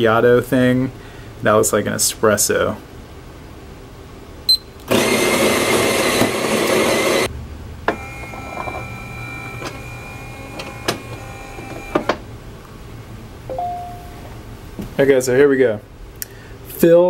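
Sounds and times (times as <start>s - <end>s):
coffee grinder running: 4.9s - 7.3s, 7.9s - 12.1s
motor whine: 4.9s - 12.2s
touchscreen beep: 13.5s - 14.3s.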